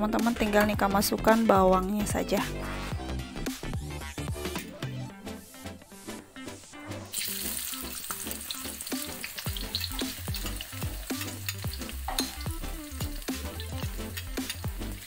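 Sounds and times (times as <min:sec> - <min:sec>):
electronic music with thumping beat: 0:00.1 - 0:07.1, 0:08.4 - 0:15.0
food sizzling in hot oil: 0:07.1 - 0:15.0
spatula clicking and scraping: 0:08.8 - 0:15.0.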